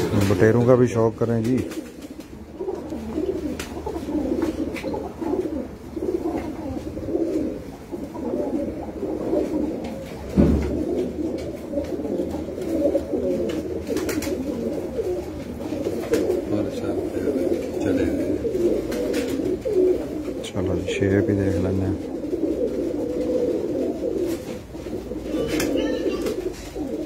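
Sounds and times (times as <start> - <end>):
pigeons cooing: 0.0 - 27.0
thump: 10.3 - 10.9.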